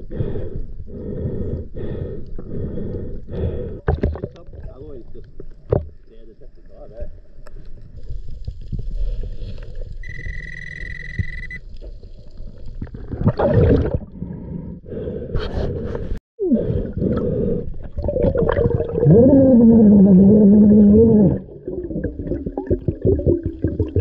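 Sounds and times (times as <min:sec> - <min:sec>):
high electronic beep: 0:10.0 - 0:11.6.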